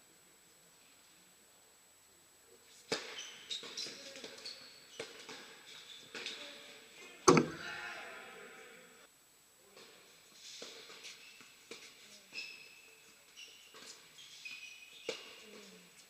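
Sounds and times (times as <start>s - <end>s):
sneaker squeaks: 2.9s - 6.5s, 10.6s - 16.0s
racket hitting tennis ball: 7.3s - 7.8s.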